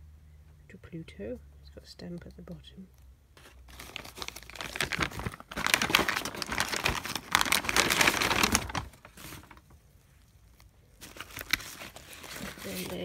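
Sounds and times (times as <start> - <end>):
packaging crinkling and rustling: 3.4 - 13.0.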